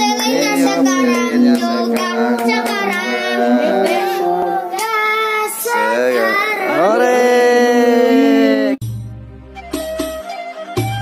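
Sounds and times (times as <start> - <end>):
child singing: 0.0 - 7.3
musical accompaniment: 8.3 - 11.0.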